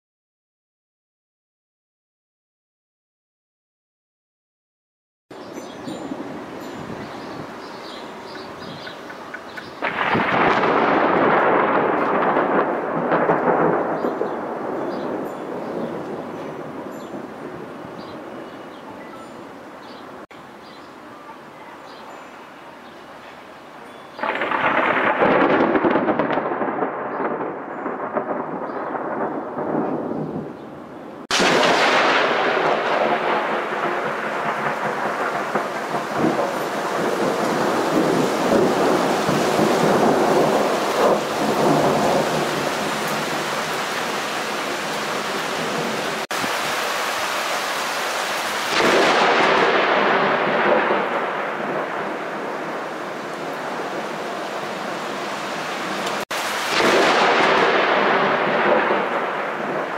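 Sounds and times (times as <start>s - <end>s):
thunder rolling: 8.6s - 18.5s, 24.2s - 46.8s, 48.7s - 54.8s, 55.8s - 59.9s.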